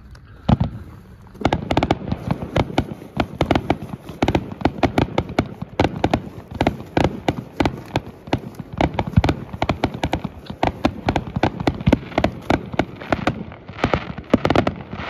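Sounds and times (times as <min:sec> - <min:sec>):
fireworks bangs: 0:00.4 - 0:15.0.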